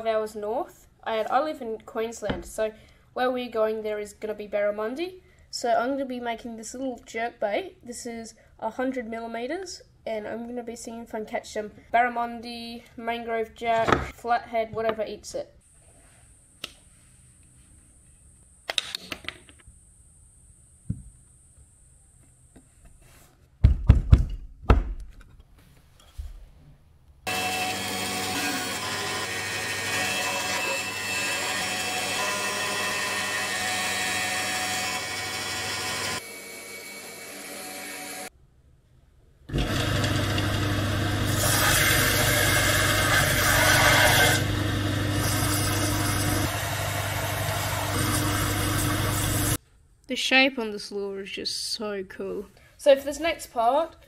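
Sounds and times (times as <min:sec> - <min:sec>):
band saw running: 0:27.3 - 0:38.3, 0:39.5 - 0:49.6
belt sander motor hum: 0:39.5 - 0:49.6
wood sanding rasp: 0:41.3 - 0:44.5, 0:45.2 - 0:49.6.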